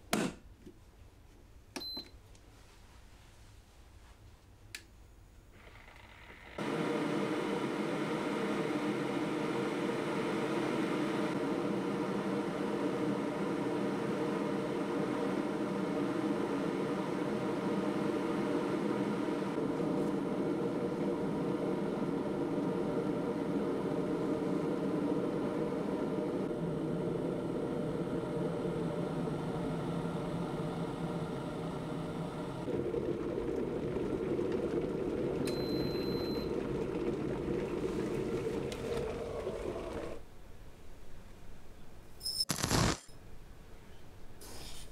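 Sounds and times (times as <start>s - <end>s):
electric kettle heating water: 5.6s - 40.2s.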